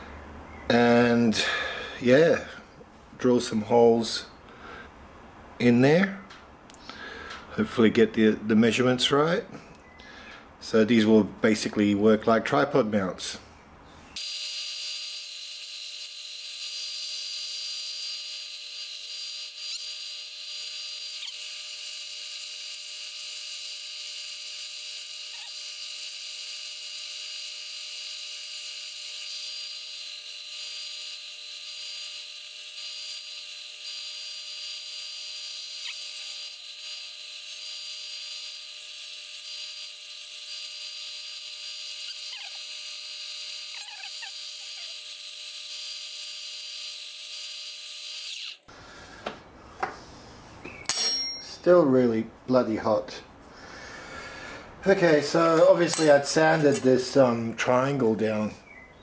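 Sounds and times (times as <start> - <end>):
sander whining: 14.2 - 49.4.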